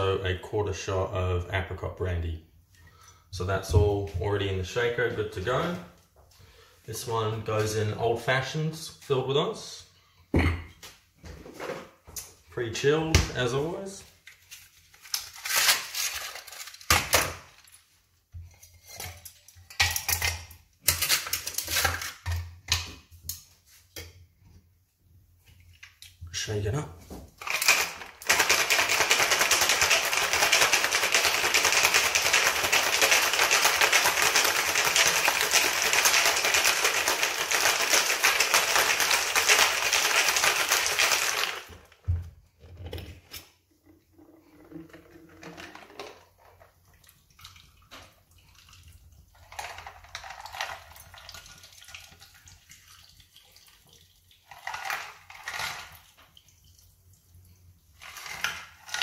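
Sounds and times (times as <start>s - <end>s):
ice rattling in cocktail shaker: 15.3s - 17.7s, 27.4s - 41.9s, 49.3s - 52.6s, 54.4s - 56.2s.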